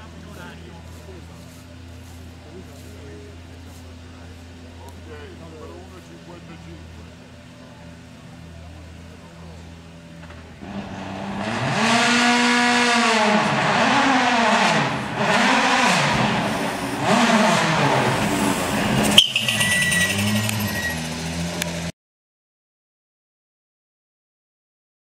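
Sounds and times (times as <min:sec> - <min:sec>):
rally car engine revving: 0:10.2 - 0:21.9.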